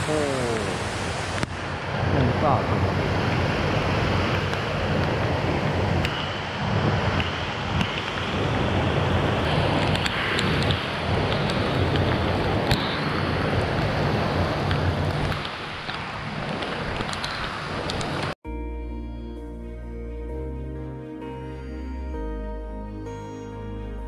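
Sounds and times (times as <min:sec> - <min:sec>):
heavy rain falling: 0:00.0 - 0:18.4
water rushing over a weir: 0:00.0 - 0:18.4.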